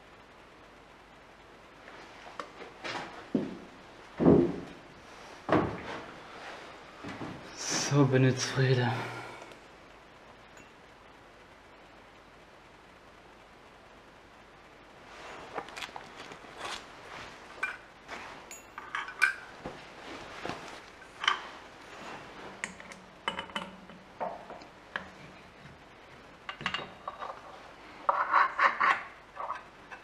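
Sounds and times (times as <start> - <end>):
metal tools clinking and knocking: 17.6 - 19.5, 21.1 - 21.5, 22.6 - 25.1, 26.5 - 27.5.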